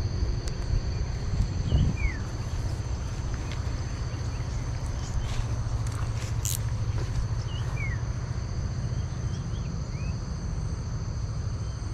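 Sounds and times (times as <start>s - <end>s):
insects droning: 0.0s - 11.9s
bird chirps: 0.7s - 8.1s, 8.8s - 10.2s.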